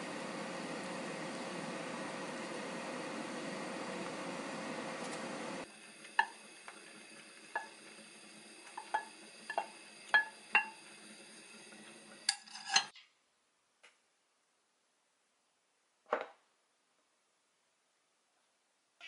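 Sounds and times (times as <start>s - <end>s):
utensil clinking against plate: 8.8s - 10.8s, 12.3s - 12.9s
spatula scraping rice from pan: 12.3s - 12.9s.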